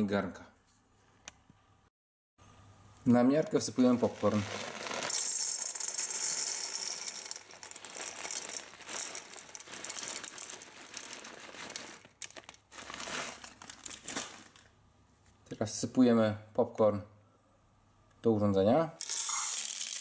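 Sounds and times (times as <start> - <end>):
plastic bag crinkling: 3.7 - 14.8
popcorn kernels rattling into cup: 3.8 - 14.7, 19.0 - 20.0.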